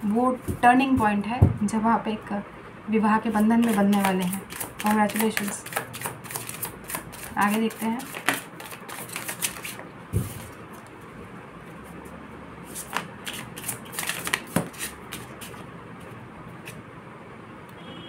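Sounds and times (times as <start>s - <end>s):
dull thump: 0.5s - 1.7s
cards being shuffled: 3.3s - 10.9s, 12.6s - 16.9s.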